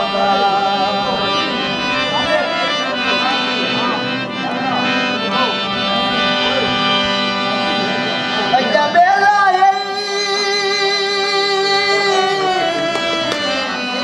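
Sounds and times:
man singing long note: 0:00.0 - 0:01.6, 0:08.5 - 0:13.8
harmonium chords: 0:00.0 - 0:14.0.

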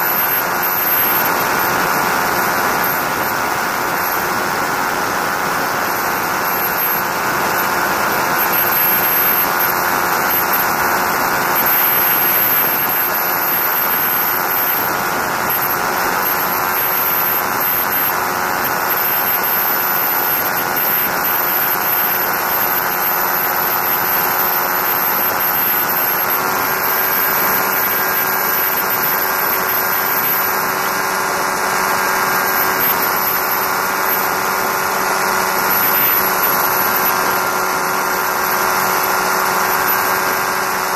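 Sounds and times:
light aircraft engine and propeller: 0:00.0 - 0:40.9.

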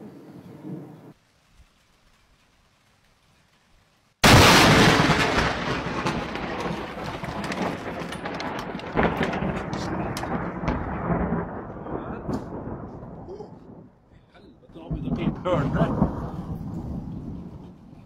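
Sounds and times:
thunder crack and rumble: 0:04.2 - 0:14.0, 0:14.6 - 0:18.0.

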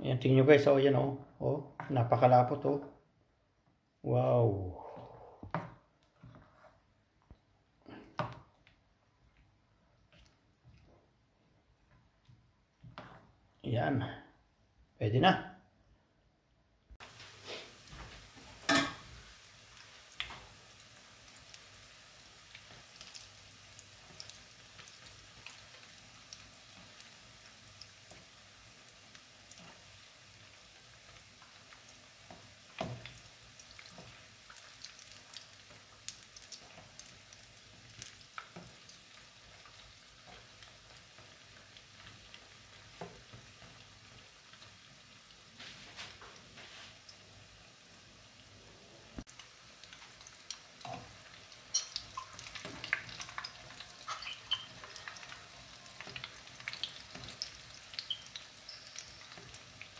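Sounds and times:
fish balls sizzling in oil: 0:17.0 - 0:59.9.

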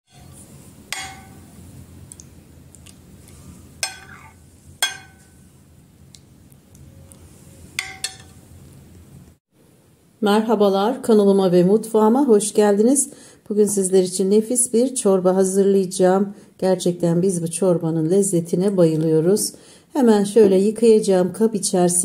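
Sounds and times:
spoon clinking on porcelain bowl: 0:00.1 - 0:01.5, 0:03.8 - 0:05.3, 0:07.8 - 0:08.3.

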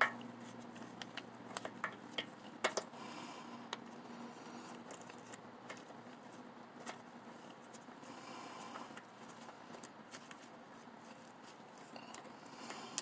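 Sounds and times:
soft rustling: 0:03.9 - 0:12.9.

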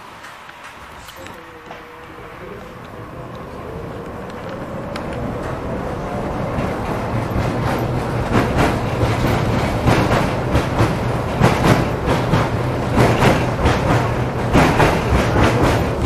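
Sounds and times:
tram wheels clattering on rails: 0:00.0 - 0:16.0.

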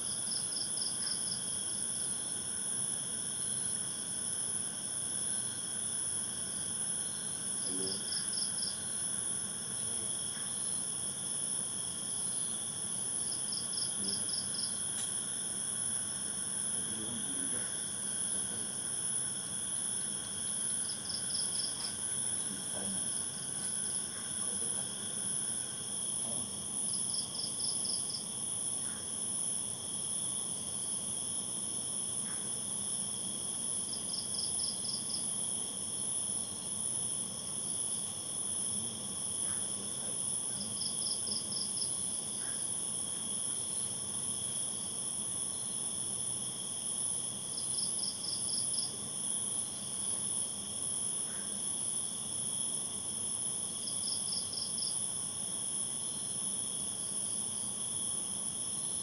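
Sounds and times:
crickets chirping: 0:00.0 - 0:59.0
insect pulsed chirping call: 0:38.6 - 0:45.8, 0:47.5 - 0:55.1.

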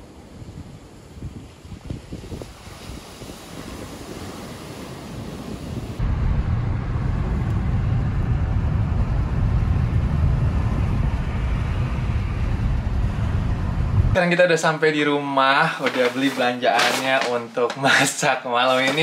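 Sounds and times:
wind buffeting microphone: 0:00.0 - 0:14.2
road and engine rumble in car: 0:06.0 - 0:14.2
surf: 0:15.5 - 0:19.0.

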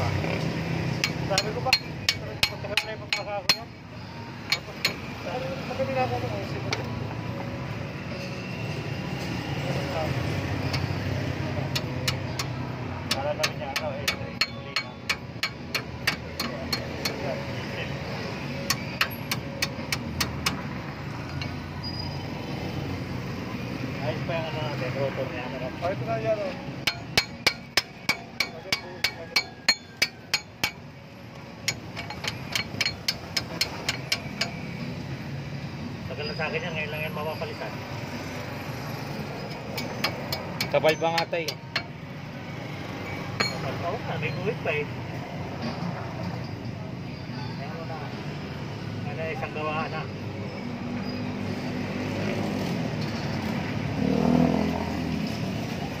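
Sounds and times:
vehicle engine humming: 0:00.0 - 0:47.3
hammer tapping metal: 0:00.9 - 0:03.8, 0:04.5 - 0:05.1, 0:11.6 - 0:17.4, 0:18.5 - 0:20.7, 0:26.8 - 0:30.9, 0:31.6 - 0:34.6, 0:39.4 - 0:42.0, 0:43.3 - 0:43.8.

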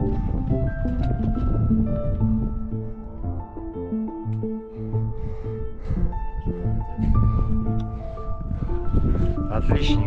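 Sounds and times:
background music melody with bass: 0:00.0 - 0:10.0.

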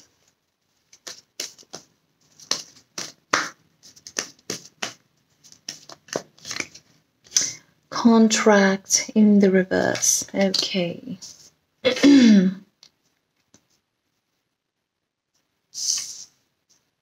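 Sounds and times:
cards being shuffled: 0:00.8 - 0:07.5.

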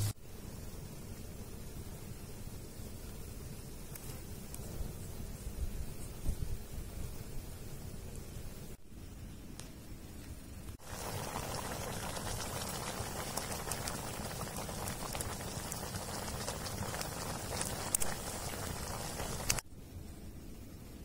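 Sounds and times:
meat sizzling and bubbling in a pot: 0:00.0 - 0:00.2, 0:10.8 - 0:19.7.

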